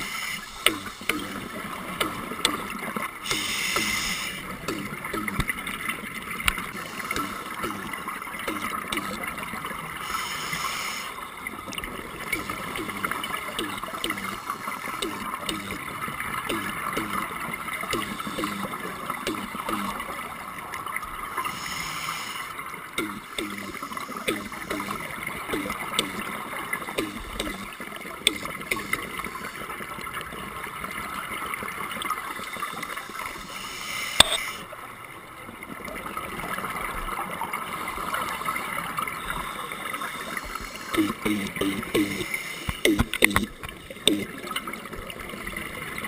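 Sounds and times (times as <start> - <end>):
underwater gurgling and bubbling: 0.0 - 34.6, 35.5 - 46.0.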